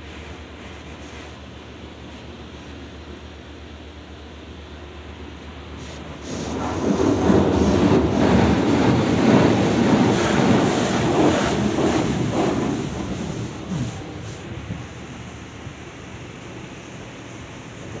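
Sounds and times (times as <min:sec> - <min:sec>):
car wash rumble on roof: 0:05.8 - 0:18.0.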